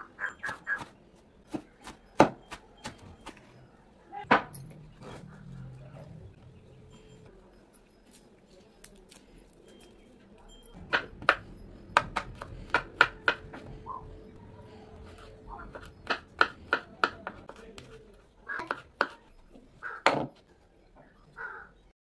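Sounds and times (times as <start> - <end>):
soft handling sounds: 6.9 - 10.8
knife chopping on wooden board: 12.0 - 13.7, 15.1 - 19.2.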